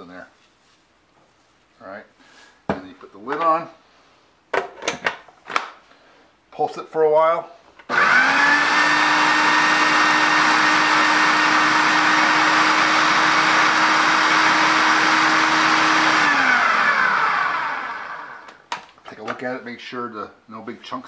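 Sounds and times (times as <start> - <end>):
food processor motor whine: 7.9 - 18.6.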